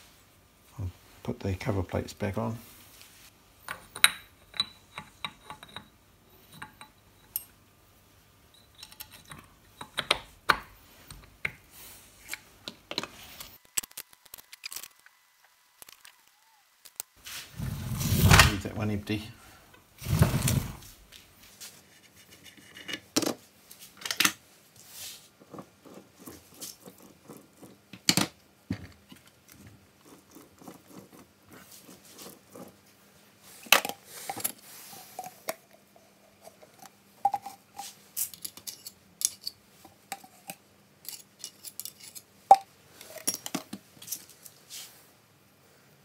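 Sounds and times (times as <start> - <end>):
steel parts clinking and knocking: 3.6 - 7.6, 8.5 - 11.3, 37.2 - 44.3.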